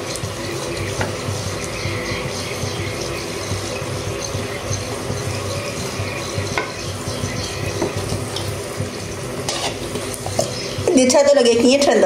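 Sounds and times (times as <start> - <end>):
samosa sizzling in hot oil: 0.0 - 12.0
metal spatula tapping pan: 0.8 - 8.6.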